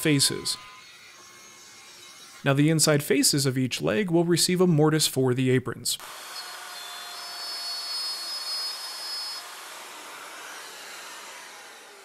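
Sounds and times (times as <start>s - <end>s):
router whirring: 0.0s - 2.4s, 6.0s - 12.0s.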